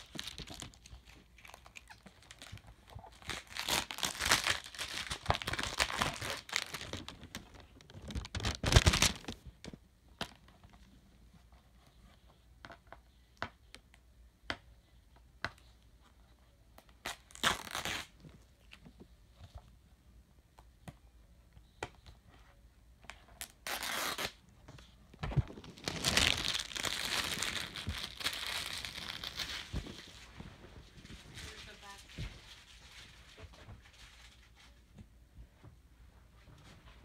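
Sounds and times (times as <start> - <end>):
plastic wrapping crinkling and tearing: 0.0 - 9.5, 17.0 - 18.2, 23.4 - 24.4, 25.2 - 34.4.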